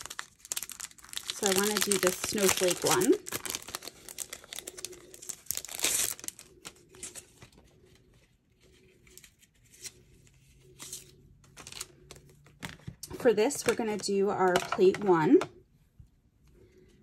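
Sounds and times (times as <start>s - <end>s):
plastic packaging crinkling: 0.0s - 7.8s, 10.6s - 14.7s.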